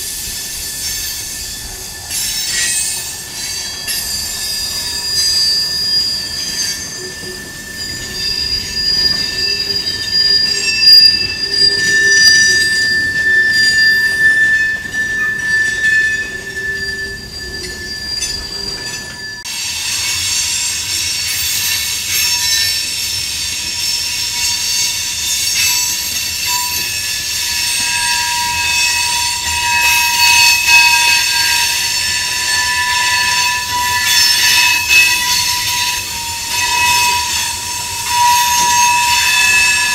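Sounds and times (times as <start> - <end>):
rumble of rolling train: 0.0 - 39.9
train wheels squealing: 0.0 - 39.9.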